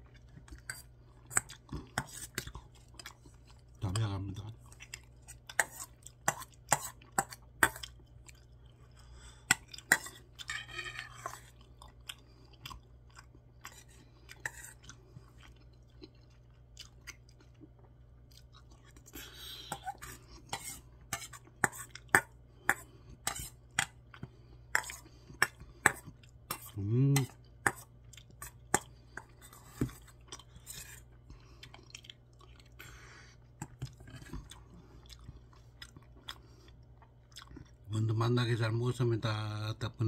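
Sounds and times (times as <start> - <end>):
close-up chewing: 0.0 - 37.9.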